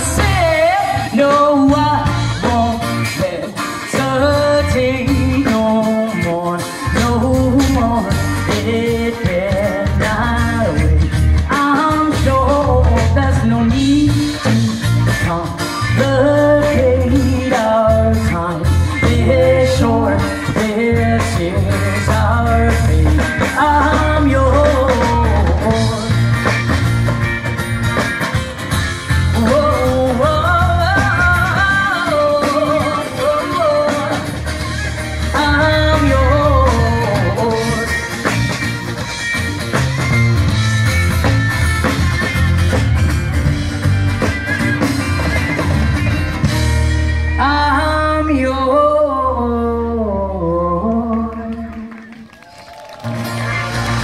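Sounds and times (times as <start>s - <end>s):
person singing: 0.0s - 26.8s, 29.2s - 38.7s, 47.4s - 52.2s
live band playing: 0.0s - 54.0s.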